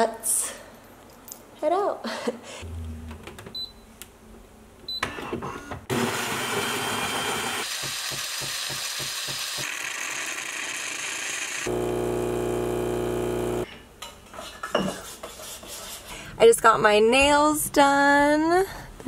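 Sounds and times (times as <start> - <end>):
espresso machine whirring and hissing: 5.9 - 13.7.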